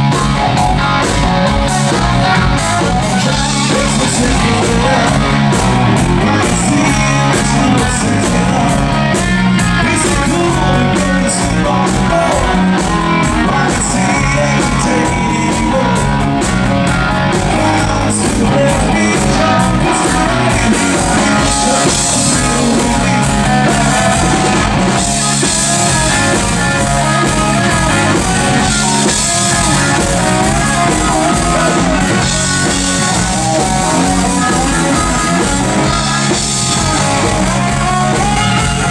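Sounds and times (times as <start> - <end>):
drum kit: 0.0 - 38.9
electric bass: 0.0 - 38.9
electric guitar: 0.0 - 38.9
man singing into a microphone: 2.8 - 38.9.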